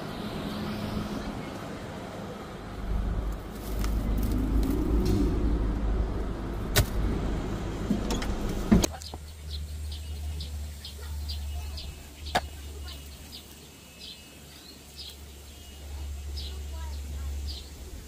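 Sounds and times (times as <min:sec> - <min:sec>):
low vehicle rumble: 0:00.0 - 0:13.5
steady low hum: 0:02.3 - 0:13.4
small bird chirping: 0:08.9 - 0:18.0.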